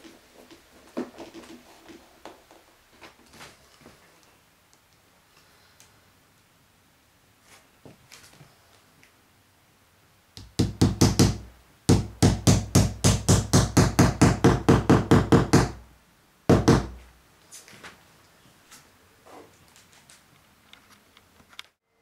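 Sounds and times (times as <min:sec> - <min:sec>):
hollow knocking on wooden ledge: 0:10.4 - 0:15.8, 0:16.5 - 0:17.0.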